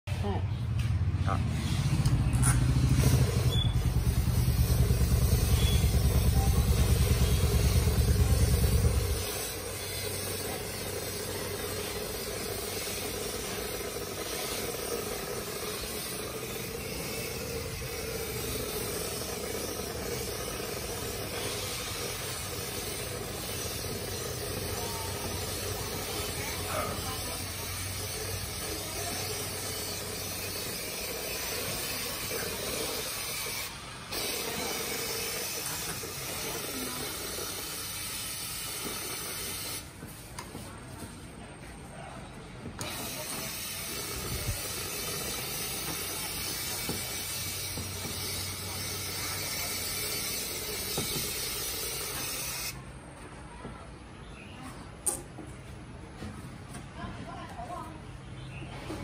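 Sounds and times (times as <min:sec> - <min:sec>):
powder-coating gun hissing: 0:02.7 - 0:39.9, 0:42.8 - 0:52.8.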